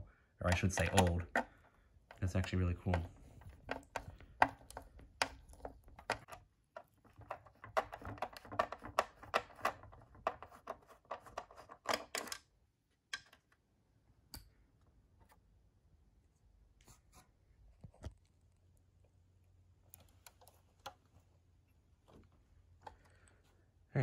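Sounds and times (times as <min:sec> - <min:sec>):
screwdriver clicking on plastic: 0:00.5 - 0:12.3.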